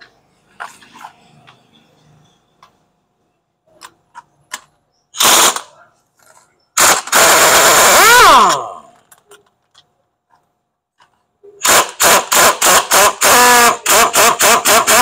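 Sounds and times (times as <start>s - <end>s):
pneumatic impact wrench hammering: 5.2s - 5.7s, 6.8s - 8.8s, 11.6s - 15.0s.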